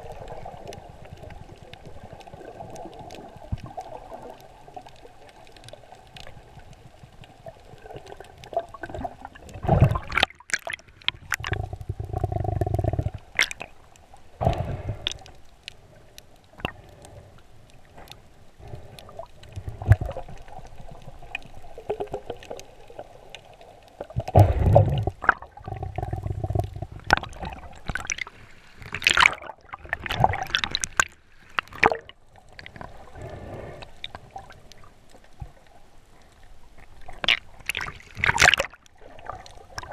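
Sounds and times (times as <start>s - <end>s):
muffled underwater gurgling: 11.1s - 13.6s, 24.1s - 28.2s.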